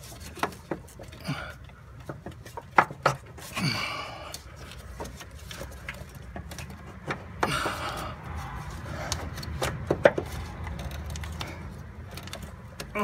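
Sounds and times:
clicks and knocks of parts handled: 0:00.0 - 0:03.6, 0:04.2 - 0:13.0.

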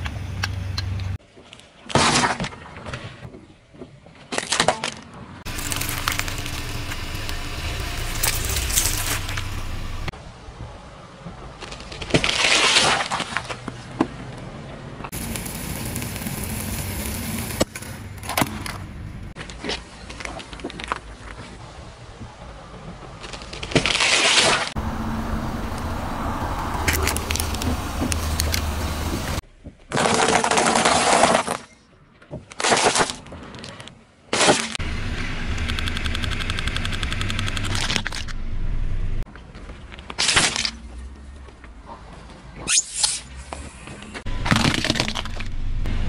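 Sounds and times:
objects crunching under car tyre: 0:04.3 - 0:10.1, 0:25.7 - 0:34.8, 0:44.2 - 0:45.8
low rumble: 0:05.5 - 0:11.0, 0:24.8 - 0:29.6, 0:34.8 - 0:39.3.

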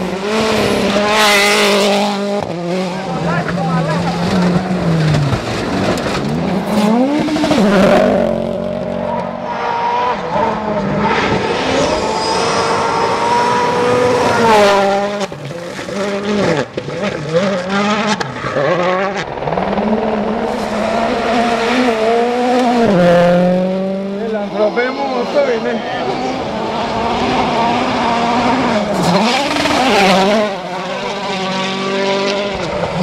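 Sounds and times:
rally cars revving past: 0:00.0 - 0:33.0.

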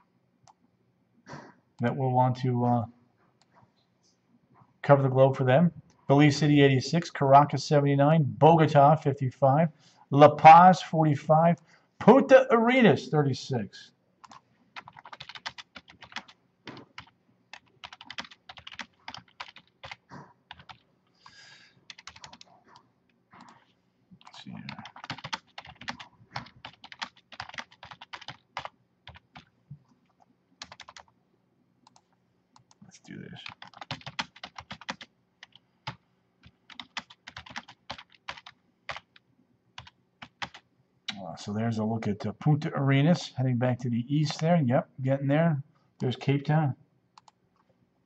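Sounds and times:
computer keyboard typing: 0:14.2 - 0:20.8, 0:21.9 - 0:22.5, 0:23.4 - 0:31.1, 0:33.4 - 0:39.2, 0:39.8 - 0:40.6, 0:47.2 - 0:47.4.

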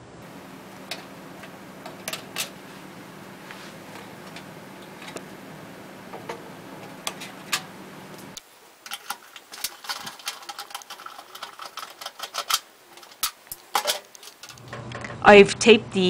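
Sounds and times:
steady low hum: 0:00.0 - 0:16.0
wires and plastic clicking: 0:00.3 - 0:05.4, 0:06.0 - 0:15.1.

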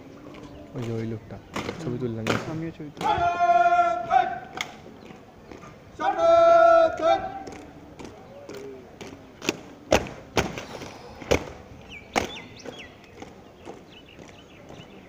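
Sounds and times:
boots stamping on pavement: 0:00.3 - 0:15.0.

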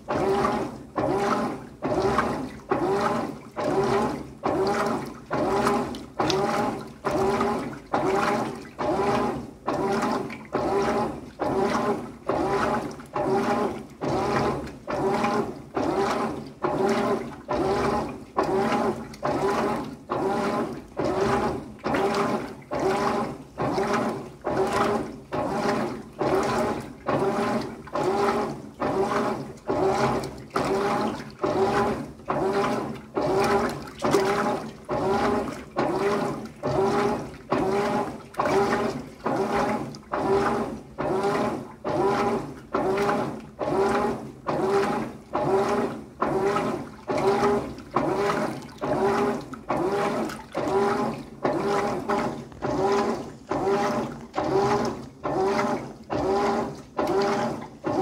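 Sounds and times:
washing machine agitating: 0:00.0 - 0:58.0.

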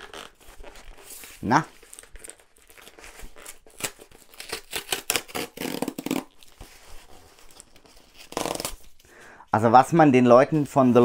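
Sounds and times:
cardboard box being torn open: 0:02.6 - 0:06.4.

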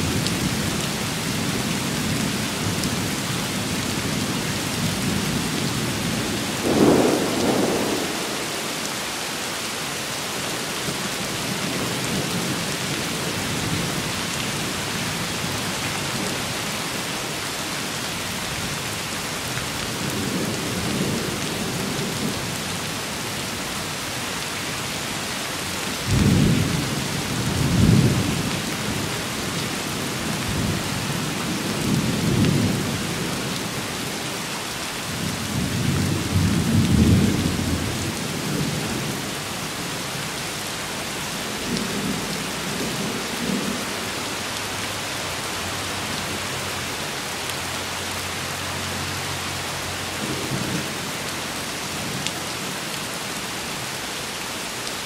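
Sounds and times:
steady rain falling: 0:00.0 - 0:55.0
thunder rumble: 0:06.5 - 0:08.8.

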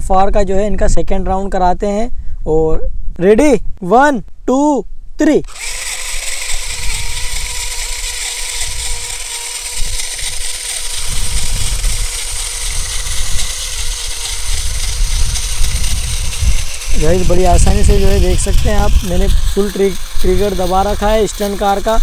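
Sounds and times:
electric motors whining: 0:05.5 - 0:22.0
wheel hiss: 0:06.4 - 0:22.0.

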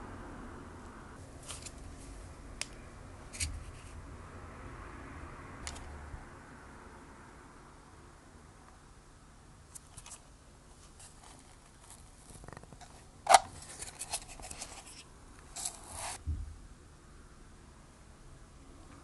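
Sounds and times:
low thump: 0:16.2 - 0:16.6.

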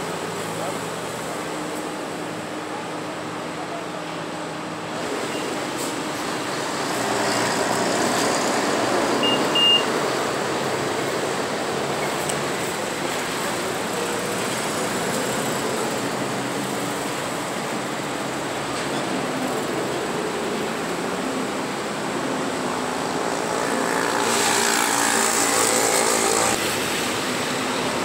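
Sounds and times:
street traffic: 0:00.0 - 0:28.0
short high beeps: 0:09.2 - 0:09.9.

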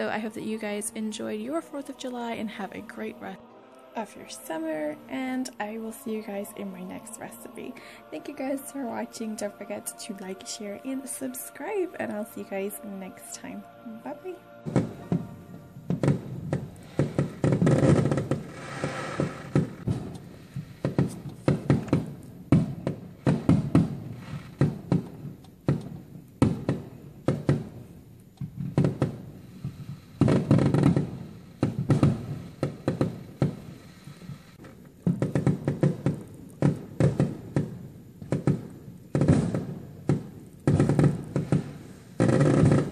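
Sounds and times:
fireworks bangs and crackles: 0:15.8 - 0:42.9.

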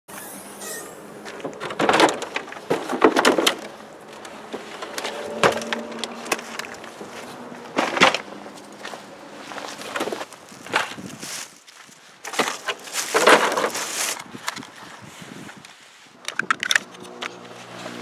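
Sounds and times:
rc car clattering in car boot: 0:01.3 - 0:07.0, 0:07.7 - 0:08.4, 0:12.3 - 0:14.6, 0:16.2 - 0:17.4.

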